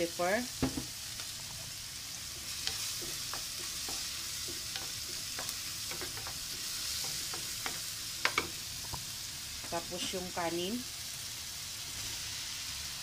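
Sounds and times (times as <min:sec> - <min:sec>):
vegetables sizzling in oil: 0:00.0 - 0:13.0
spatula scraping and tapping pan: 0:02.4 - 0:10.2
spatula knocking on pan: 0:03.0 - 0:09.0.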